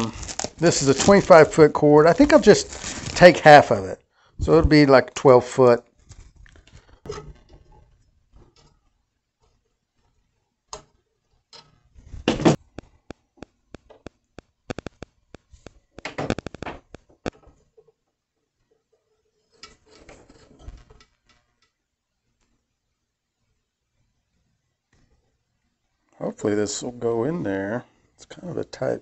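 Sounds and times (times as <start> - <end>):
cutter crunching through cord: 0.0 - 3.4
soft scuffling: 0.0 - 3.7.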